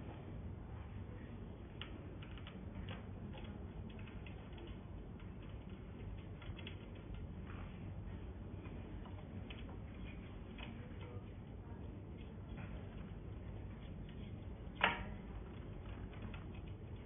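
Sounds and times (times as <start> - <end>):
low steady hum: 0.0 - 17.0
small metal clicks and taps: 8.6 - 17.0.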